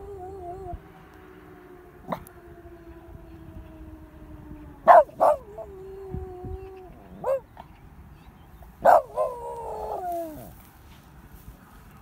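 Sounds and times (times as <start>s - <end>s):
dog howling: 0.0s - 0.8s, 2.0s - 7.4s
dog barking: 4.8s - 5.7s, 7.2s - 7.5s, 8.8s - 10.1s.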